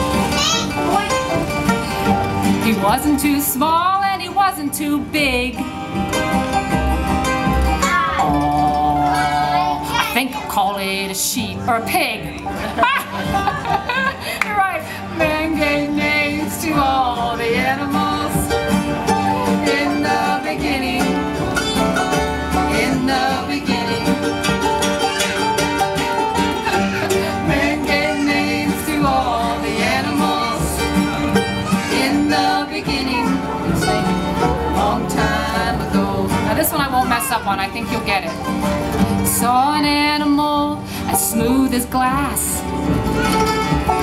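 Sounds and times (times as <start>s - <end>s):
bluegrass band playing: 0.0s - 44.0s.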